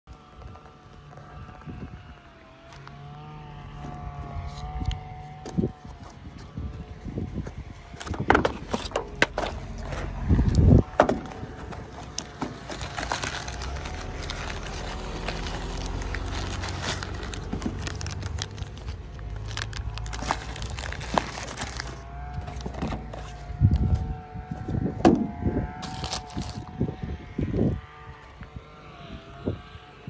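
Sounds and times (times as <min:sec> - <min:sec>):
plastic bag crinkling: 0:11.2 - 0:24.0, 0:25.7 - 0:26.6.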